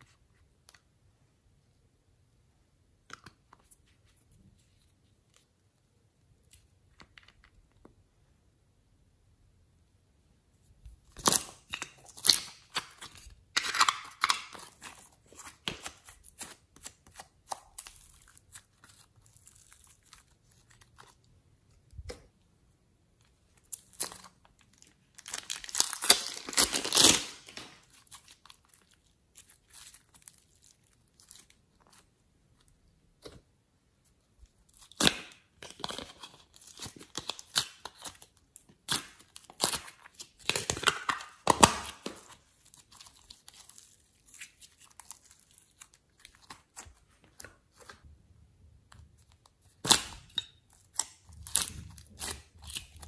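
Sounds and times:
plastic crinkling and crackling: 0:23.6 - 0:32.0.

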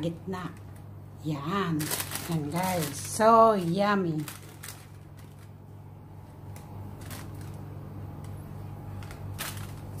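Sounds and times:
steady low hum: 0:00.0 - 0:10.0
parchment paper rustling: 0:01.4 - 0:05.7, 0:06.5 - 0:07.8, 0:08.9 - 0:10.0.

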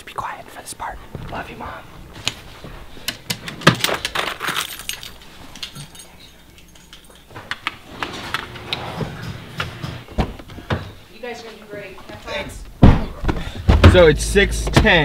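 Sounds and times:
keys and metal objects clinking: 0:03.0 - 0:09.9.

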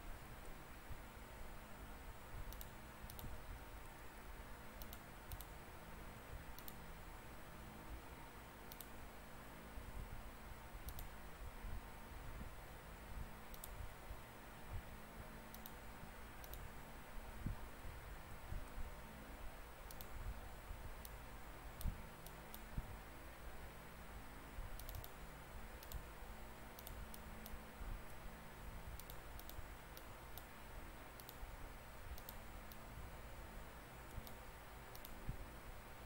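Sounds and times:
low room hum: 0:00.0 - 0:36.0
mouse and keyboard clicks: 0:02.5 - 0:03.4, 0:04.8 - 0:05.6, 0:06.5 - 0:06.8, 0:08.7 - 0:09.0, 0:10.8 - 0:11.1, 0:13.5 - 0:13.8, 0:15.5 - 0:15.8, 0:16.4 - 0:16.7, 0:19.9 - 0:20.2, 0:24.8 - 0:25.2, 0:25.8 - 0:26.1, 0:26.8 - 0:27.6, 0:29.0 - 0:30.5, 0:31.2 - 0:31.4, 0:34.1 - 0:35.2.

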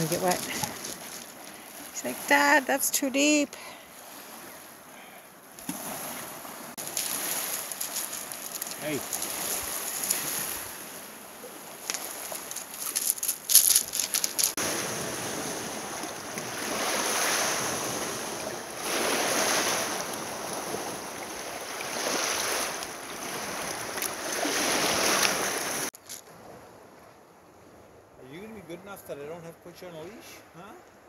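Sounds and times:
waves washing against rocks: 0:05.8 - 0:25.9
crackling clicks: 0:06.9 - 0:09.3, 0:11.8 - 0:14.6.

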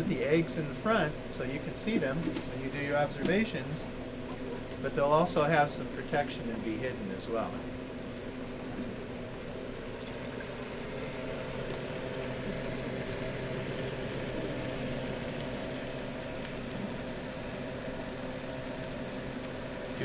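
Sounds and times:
low motor hum: 0:00.0 - 0:20.0
water splashing and bubbling: 0:08.6 - 0:20.0.

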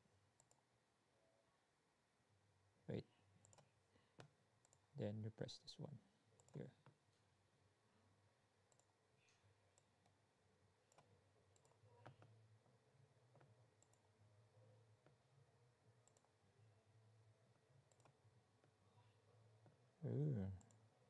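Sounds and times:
computer mouse clicks: 0:00.4 - 0:00.6, 0:03.4 - 0:04.8, 0:06.4 - 0:07.0, 0:08.7 - 0:10.2, 0:10.9 - 0:12.4, 0:13.3 - 0:14.1, 0:16.0 - 0:16.4, 0:17.9 - 0:18.8.

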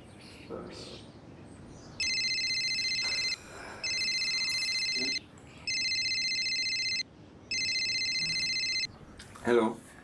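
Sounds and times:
telephone ringing electronic trill: 0:02.0 - 0:08.9.

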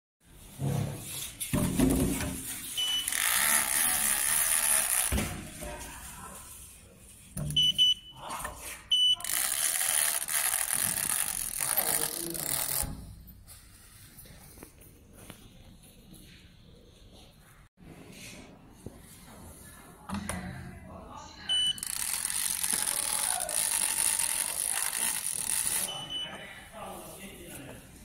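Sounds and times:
short high beeps: 0:02.8 - 0:03.2, 0:07.5 - 0:08.2, 0:08.9 - 0:09.3, 0:25.8 - 0:26.4.

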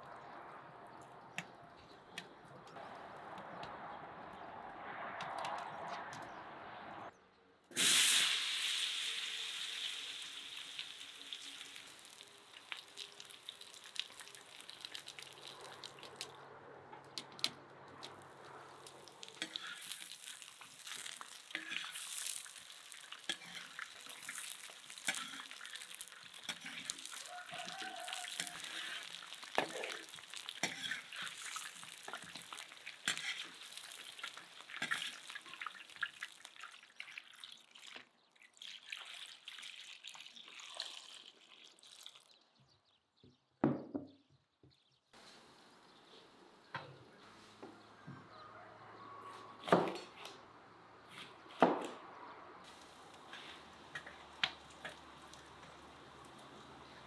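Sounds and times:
potato wedges sizzling in oil: 0:07.7 - 0:16.3, 0:18.7 - 0:38.0, 0:52.7 - 0:57.0.

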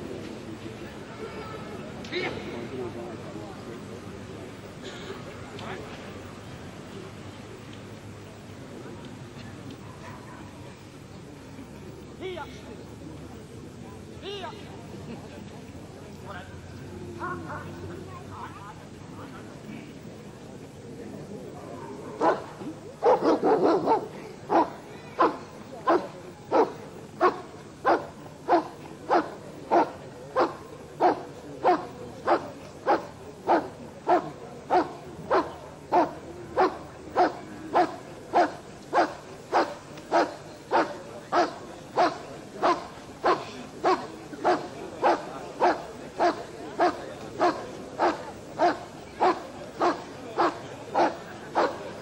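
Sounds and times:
dog barking: 0:23.0 - 0:51.8.

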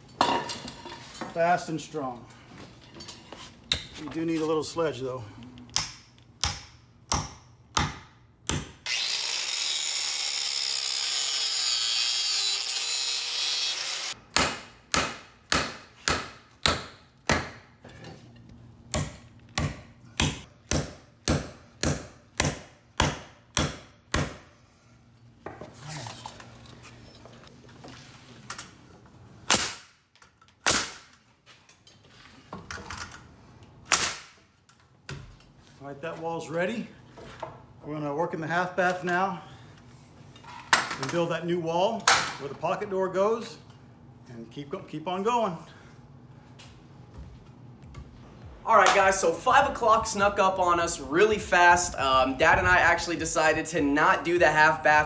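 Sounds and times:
masonry drill boring into concrete: 0:08.8 - 0:14.2
pneumatic nailer shots: 0:29.5 - 0:30.0, 0:30.6 - 0:31.1, 0:33.8 - 0:34.4.

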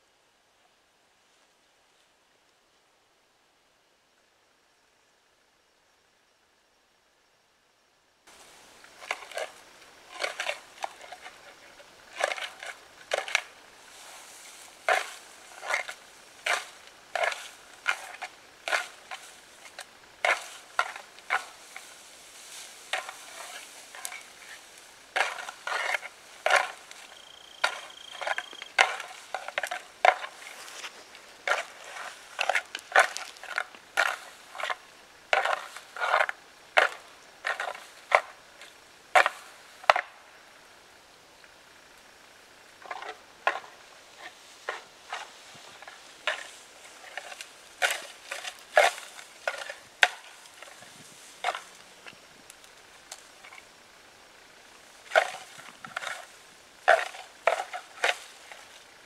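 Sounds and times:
dry branches cracking and snapping: 0:08.4 - 0:13.6, 0:14.5 - 0:34.8, 0:45.1 - 0:53.7, 0:55.0 - 0:58.9.

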